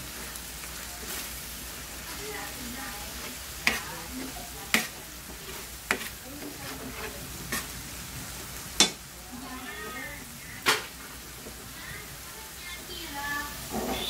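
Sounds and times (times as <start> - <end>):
meat sizzling in a frying pan: 0.0 - 14.0
metal ladle knocking on pan: 8.8 - 9.0.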